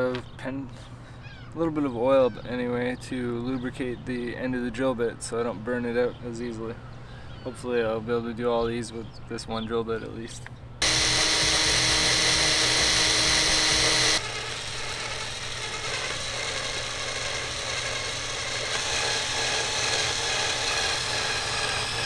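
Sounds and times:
cordless drill whining: 0:10.8 - 0:22.0
drill bit cutting metal: 0:10.8 - 0:22.0.

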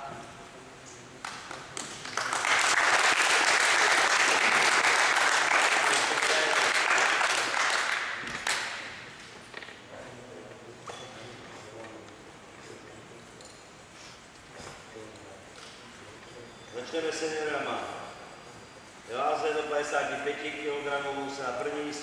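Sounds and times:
people clapping: 0:01.2 - 0:09.3.

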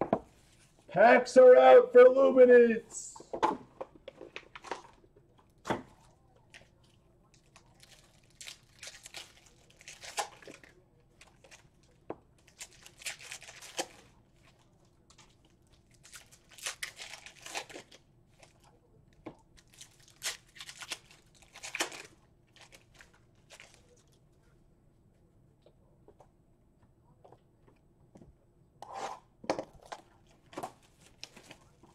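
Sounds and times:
plastic wrappers tearing and crinkling: 0:07.4 - 0:14.5, 0:15.1 - 0:18.7, 0:19.6 - 0:24.1.

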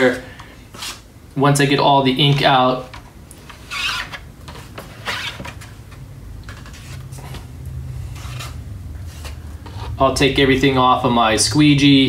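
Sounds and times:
low steady hum: 0:00.0 - 0:12.0
metal spatula scraping mesh: 0:08.0 - 0:10.1.

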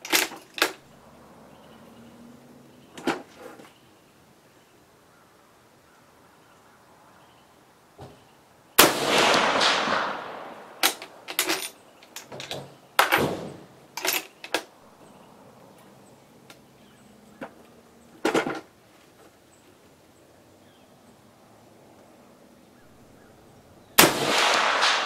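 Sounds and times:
rifle shot: 0:08.8 - 0:11.3, 0:24.0 - 0:25.0
rifle bolt clicking and clacking: 0:09.3 - 0:13.2.

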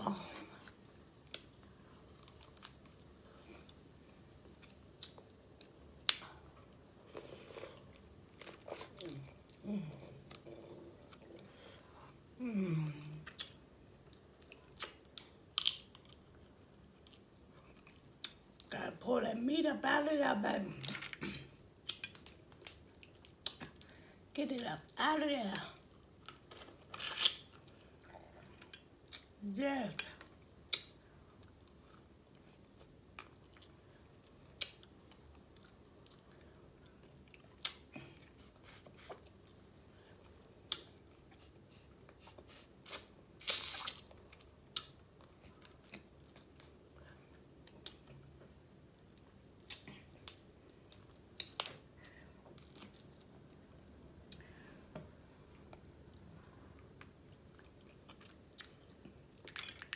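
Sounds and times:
chewing crab meat: 0:55.7 - 0:59.9.

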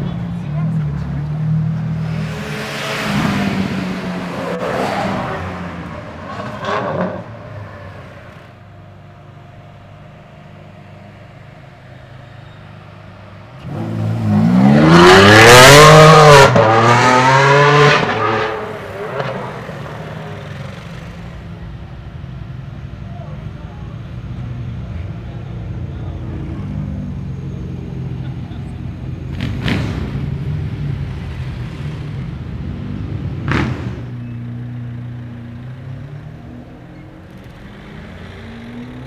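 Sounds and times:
engines revving: 0:00.0 - 0:39.0
sports car accelerating hard: 0:00.5 - 0:08.0, 0:13.5 - 0:20.7, 0:31.9 - 0:39.0.

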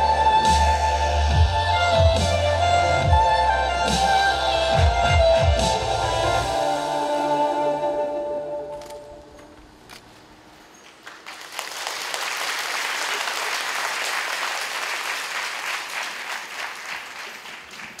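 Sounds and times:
audience applause: 0:10.9 - 0:18.0.

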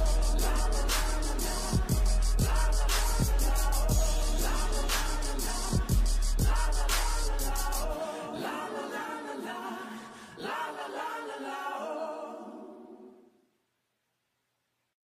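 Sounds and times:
background music beat and bass: 0:00.0 - 0:08.0
sung vocal harmonies: 0:00.0 - 0:13.4.

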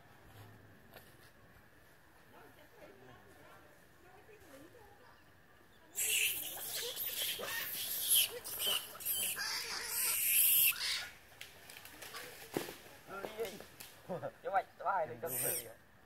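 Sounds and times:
baby monkey screaming: 0:05.9 - 0:11.2, 0:15.3 - 0:15.7.

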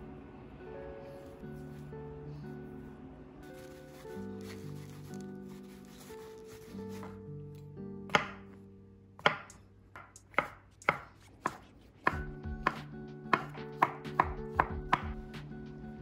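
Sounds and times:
knife chopping on cutting board: 0:08.1 - 0:08.5, 0:09.2 - 0:15.2.

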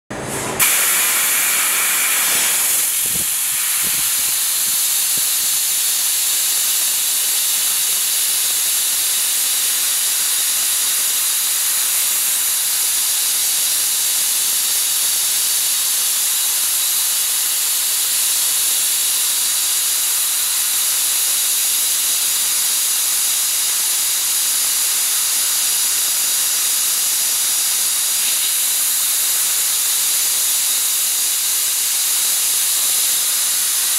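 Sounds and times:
assist gas hissing from nozzle: 0:00.6 - 0:14.0, 0:23.6 - 0:33.9.

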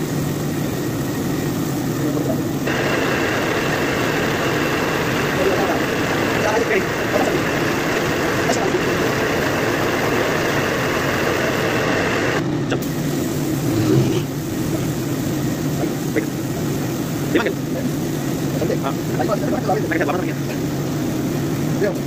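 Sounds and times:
motor hum: 0:00.0 - 0:21.9
paint spray gun hissing: 0:00.0 - 0:22.0.

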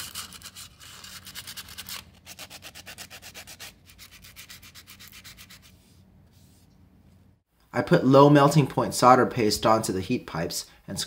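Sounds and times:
copper rubbed on sandpaper: 0:00.0 - 0:06.7.

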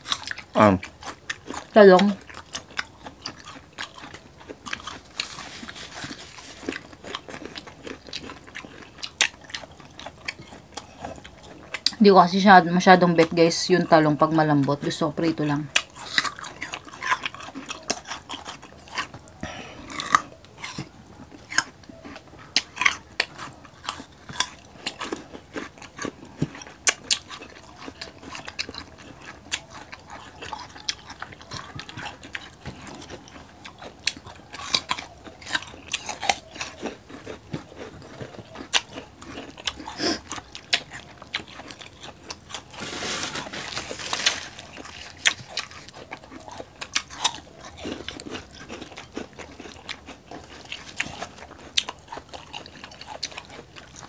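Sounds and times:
crunching crispy food: 0:00.0 - 0:54.0
wet chewing and smacking: 0:00.0 - 0:54.0
paper napkin rustle: 0:05.2 - 0:06.7, 0:42.7 - 0:44.7.

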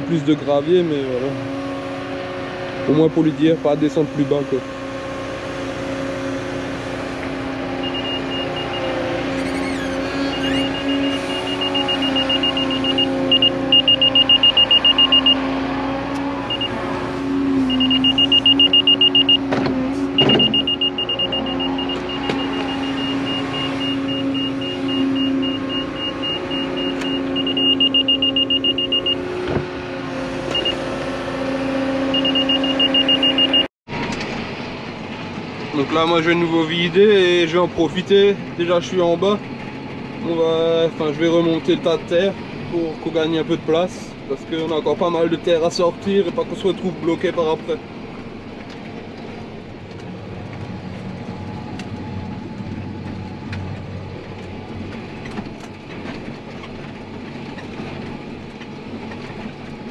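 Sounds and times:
diesel engine running: 0:00.0 - 0:59.9
rapid high-pitched beeps: 0:10.3 - 0:15.4, 0:17.7 - 0:19.4, 0:20.2 - 0:29.2.

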